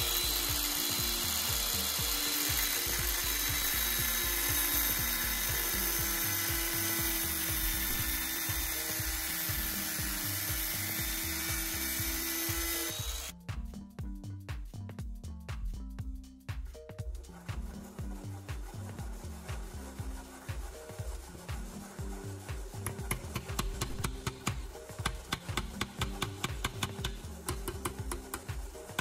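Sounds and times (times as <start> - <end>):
power tool grinding: 0.0 - 13.3
background music with bass line: 0.0 - 29.0.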